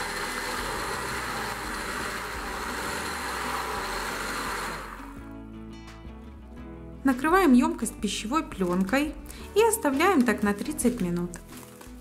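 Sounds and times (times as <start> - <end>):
electric blender running: 0.0 - 5.3
faint background music: 1.6 - 12.0.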